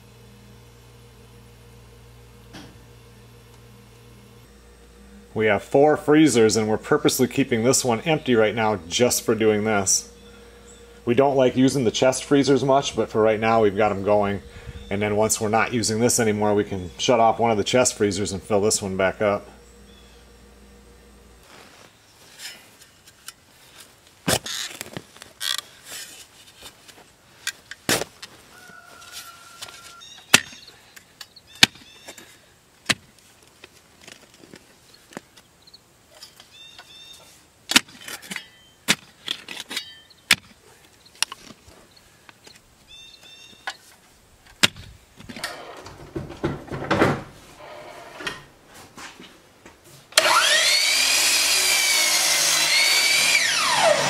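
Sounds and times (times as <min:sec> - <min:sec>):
power tool motor spinning up: 0:50.2 - 0:54.0.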